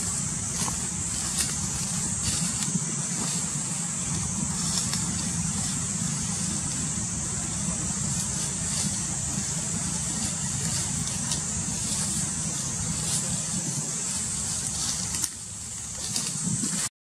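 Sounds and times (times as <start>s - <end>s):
constant high hiss: 0.0s - 16.9s
low rumble: 0.0s - 16.9s.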